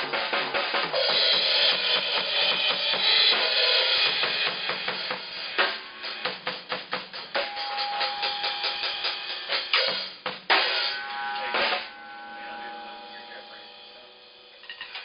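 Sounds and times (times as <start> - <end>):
drum and cymbal hits: 0.0 - 11.9.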